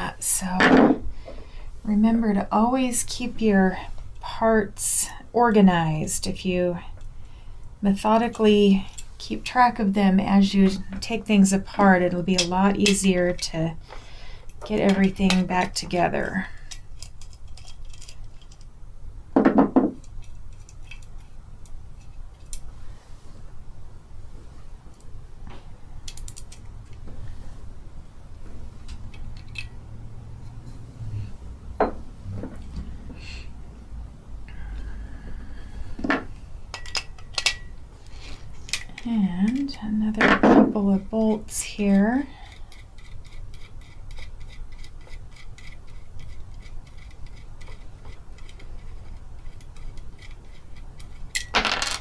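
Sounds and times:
small metal parts clicking: 0:16.6 - 0:18.7, 0:36.7 - 0:37.7.

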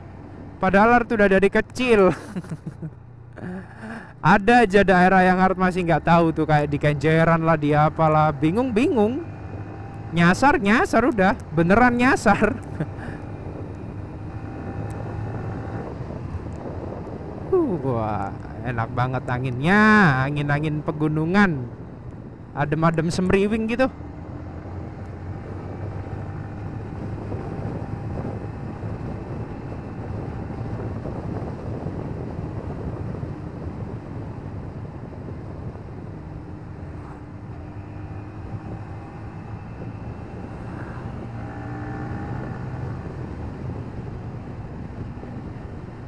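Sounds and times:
wind on microphone: 0:12.6 - 0:18.6, 0:25.4 - 0:37.6
motorcycle engine running: 0:35.6 - 0:46.0.

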